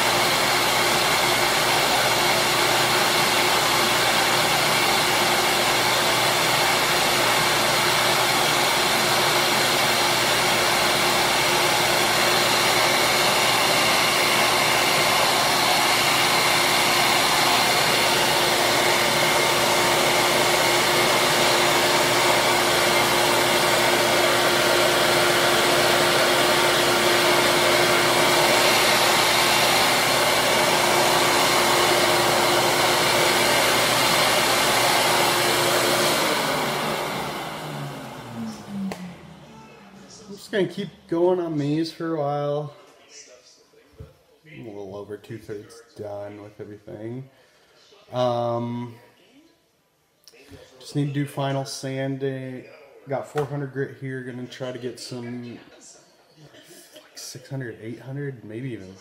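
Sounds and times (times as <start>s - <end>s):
power sander whirring: 0.0s - 40.2s.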